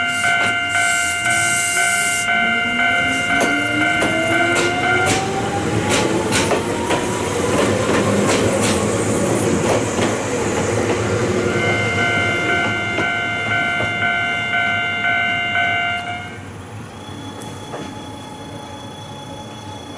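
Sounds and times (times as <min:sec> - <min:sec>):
electric train running: 0:00.0 - 0:14.3.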